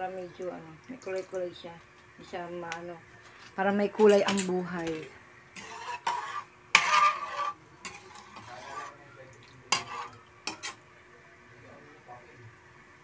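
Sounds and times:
utensil stirring and scraping pot: 0:03.2 - 0:10.9.

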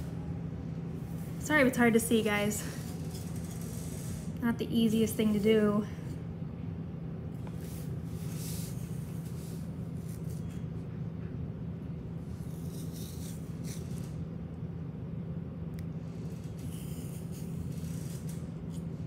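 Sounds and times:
steady low hum: 0:00.0 - 0:19.0
comb scratching through fur: 0:12.3 - 0:14.2, 0:16.2 - 0:18.9.

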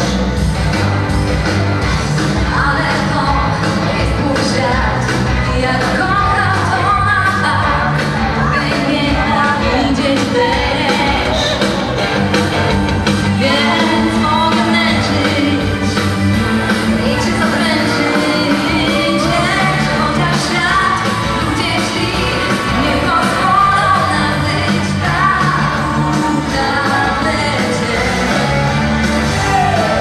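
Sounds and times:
upbeat dance music with singing: 0:01.9 - 0:30.0.

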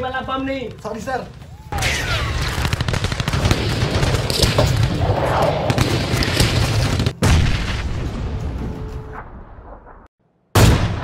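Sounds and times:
rapid gunfire and booms: 0:01.8 - 0:08.2.

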